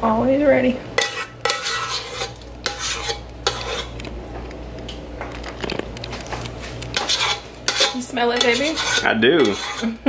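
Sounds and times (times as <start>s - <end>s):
utensil scraping thick filling in pan: 1.0s - 4.0s, 6.5s - 10.0s.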